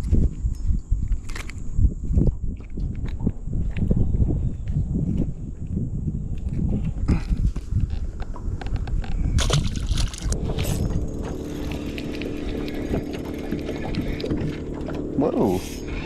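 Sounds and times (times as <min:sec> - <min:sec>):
rumble of water and wind: 0:00.0 - 0:16.0
boat motor humming: 0:10.3 - 0:16.0.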